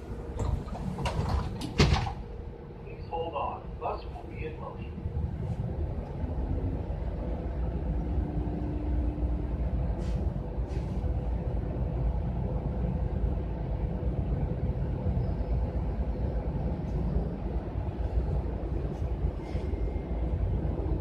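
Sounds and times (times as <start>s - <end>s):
bus engine idling: 0.0s - 21.0s.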